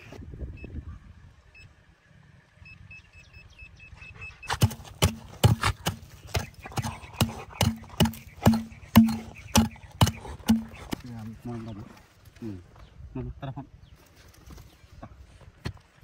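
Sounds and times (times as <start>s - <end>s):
metal detector beeps: 2.6s - 4.8s
sharp knocks with low thuds: 4.5s - 11.0s.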